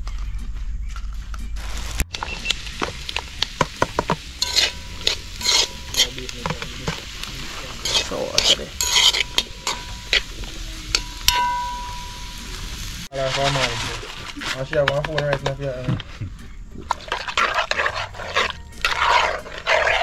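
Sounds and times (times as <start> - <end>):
food sizzling: 1.6 - 20.0
metal spoon scraping in a pot: 3.9 - 12.3, 14.2 - 20.0.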